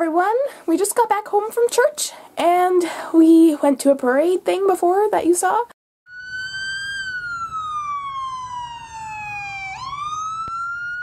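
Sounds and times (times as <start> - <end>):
police siren wailing: 6.1 - 11.0.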